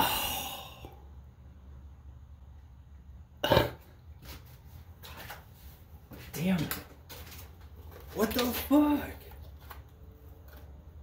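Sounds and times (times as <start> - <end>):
breathy sounds: 0.0 - 1.2
low steady hum: 0.0 - 11.0
person coughing: 3.4 - 3.9.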